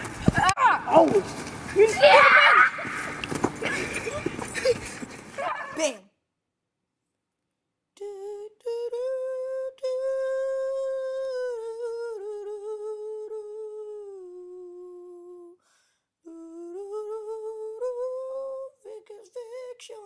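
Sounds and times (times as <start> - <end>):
person humming: 8.0 - 15.6, 16.2 - 18.7.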